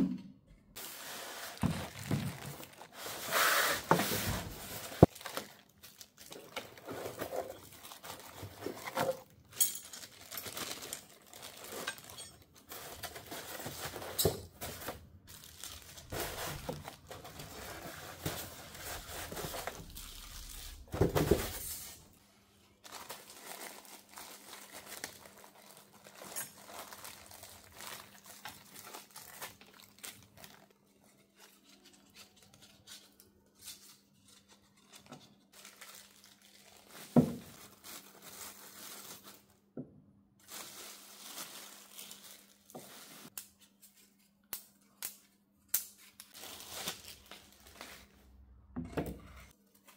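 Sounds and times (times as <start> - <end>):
plastic bags crinkling: 0.8 - 3.3, 4.5 - 21.5, 22.8 - 31.5, 35.5 - 39.6, 40.4 - 43.4, 46.3 - 48.2.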